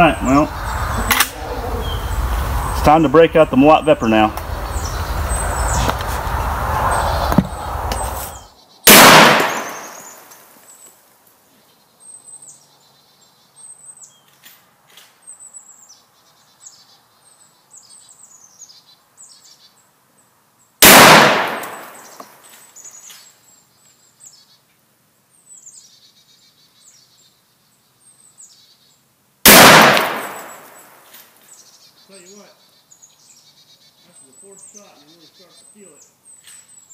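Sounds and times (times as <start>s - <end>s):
loud rumbling noise: 0.0s - 8.4s
small birds chirping: 0.0s - 8.8s, 9.4s - 20.8s, 21.5s - 36.9s
rifle shots with echo: 8.9s - 10.3s, 20.8s - 22.2s, 29.5s - 30.9s.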